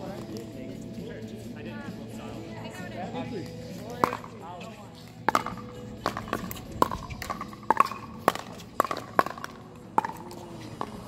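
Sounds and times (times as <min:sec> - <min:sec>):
paddles striking plastic ball: 0:05.3 - 0:11.0.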